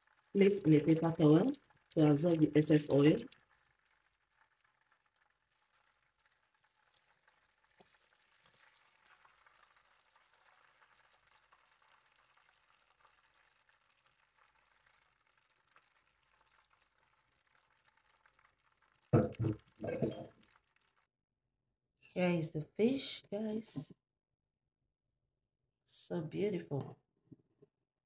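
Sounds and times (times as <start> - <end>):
frying oil sizzling: 0.0 - 19.1.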